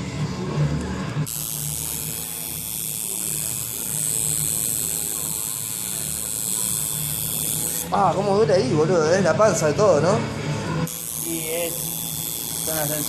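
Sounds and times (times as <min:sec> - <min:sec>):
tattoo machine buzzing: 0:01.2 - 0:08.5, 0:10.8 - 0:13.0.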